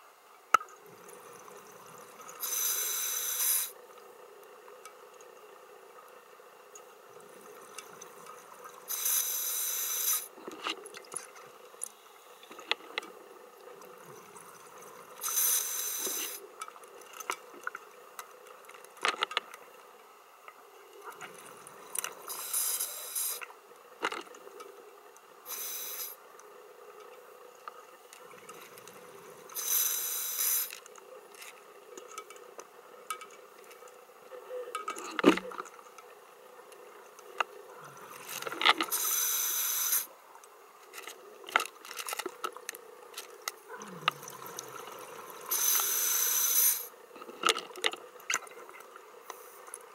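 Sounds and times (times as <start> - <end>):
faint steady hum: 0.0 - 49.9
exhaled bubbles underwater: 43.6 - 45.5.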